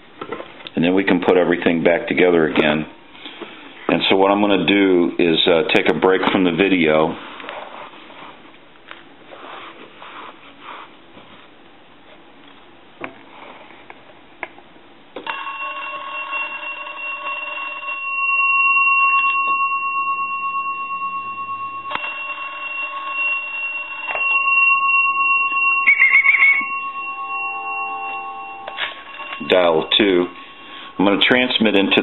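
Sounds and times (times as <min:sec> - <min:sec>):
steady high electronic tone: 0:19.6 - 0:32.0.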